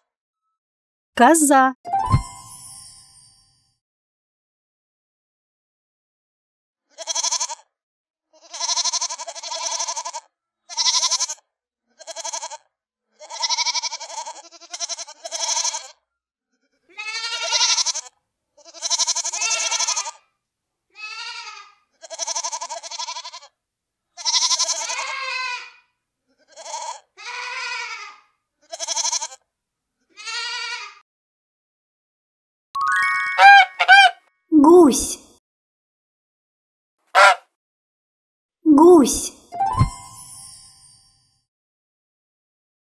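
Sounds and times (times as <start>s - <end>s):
goats bleating: 13.2s - 15.8s, 16.9s - 18.0s, 18.7s - 20.1s, 21.0s - 23.4s, 24.2s - 25.7s, 26.5s - 29.3s, 30.1s - 31.0s.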